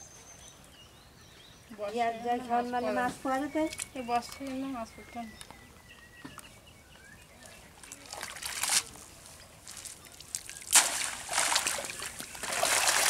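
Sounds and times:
water dripping off wet net: 9.7 - 13.0.

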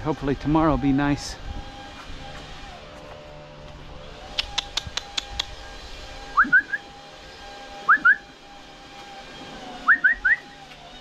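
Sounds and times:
sharp clicks: 4.3 - 5.6.

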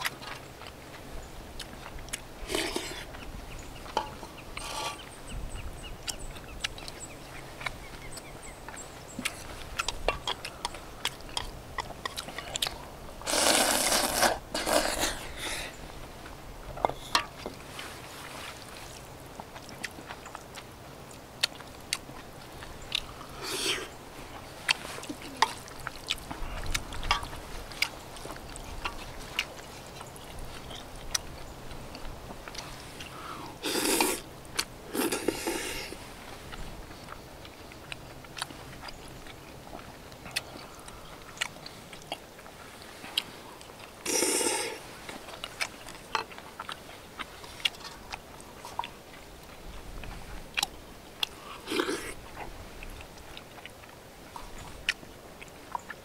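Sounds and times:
wet chewing: 0.0 - 56.0
slurping noodles: 2.4 - 3.1, 13.2 - 15.8, 33.1 - 34.3, 34.9 - 36.0, 44.0 - 44.9, 51.3 - 52.2.

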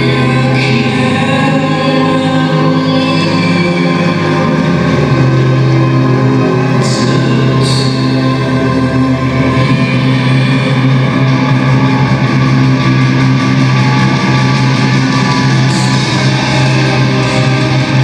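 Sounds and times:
loud instrumental music: 0.0 - 18.0.

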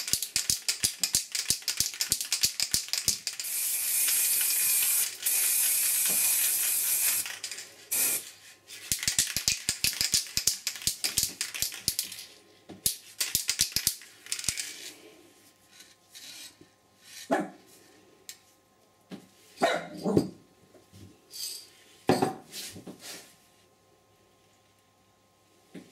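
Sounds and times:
spray can rattling when shaken: 0.0 - 12.3, 12.9 - 14.8
spray can hissing: 1.1 - 8.3
dog barking: 17.3 - 17.6, 19.6 - 20.2.

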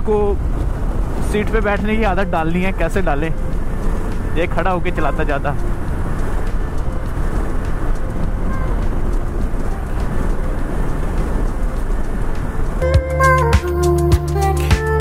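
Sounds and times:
wind rushing over microphone: 0.0 - 12.8
road noise: 0.0 - 15.0.

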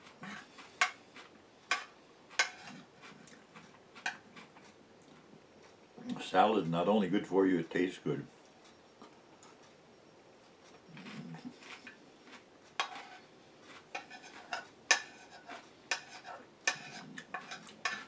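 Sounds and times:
cutlery clinking on ceramic bowl: 15.9 - 18.0.

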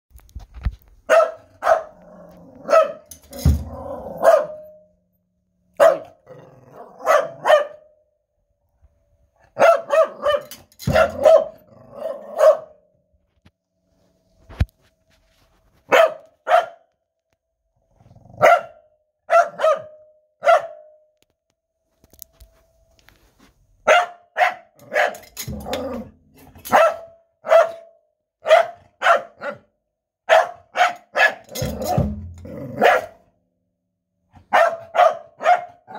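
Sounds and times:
dog barking: 1.1 - 3.2, 4.0 - 4.8, 5.7 - 7.9, 9.5 - 12.8, 15.9 - 16.9, 18.4 - 21.0, 23.8 - 25.3, 26.6 - 29.7, 30.3 - 32.1, 32.7 - 33.2, 34.3 - 35.9.

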